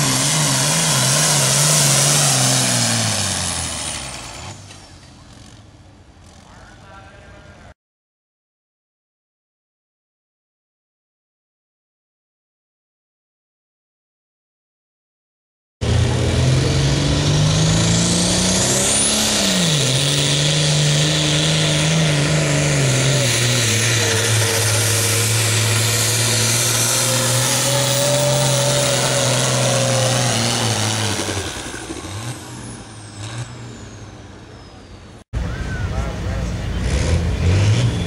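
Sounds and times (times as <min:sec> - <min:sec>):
tractor engine at full throttle: 0:00.0 - 0:07.5, 0:15.8 - 0:34.1, 0:35.4 - 0:38.0.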